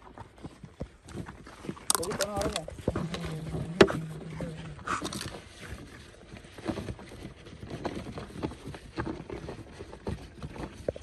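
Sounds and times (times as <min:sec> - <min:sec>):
plastic can scraping on gravel: 0:00.8 - 0:11.0.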